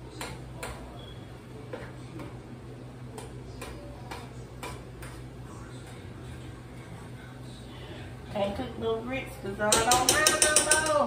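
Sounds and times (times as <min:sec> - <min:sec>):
steady low hum: 0:00.0 - 0:11.0
utensil clinking on saucepan: 0:09.7 - 0:11.0.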